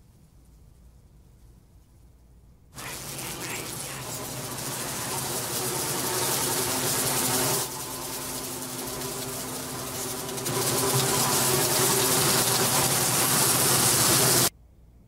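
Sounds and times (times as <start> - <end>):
insect-like buzzing drone: 2.8 - 14.5
low humming tones: 2.8 - 14.5.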